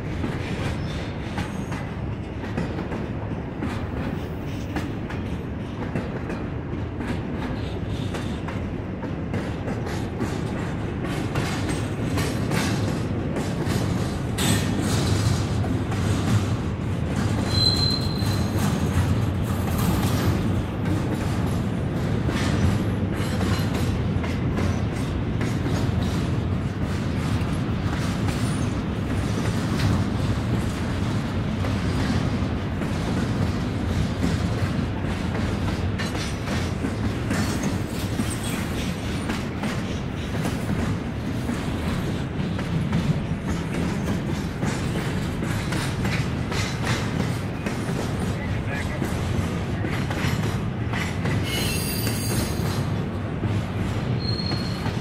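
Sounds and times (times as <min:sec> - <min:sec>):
train wheels rumbling on rail: 0:00.0 - 0:55.0
high squeal: 0:17.5 - 0:18.6, 0:51.5 - 0:52.6.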